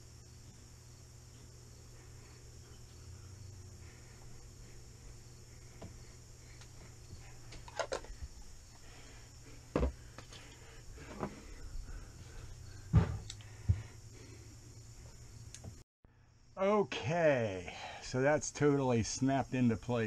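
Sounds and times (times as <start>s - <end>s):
high insect chirr: 0.0s - 20.0s
knocks and thumps handling canvas: 9.7s - 10.0s, 12.8s - 13.8s.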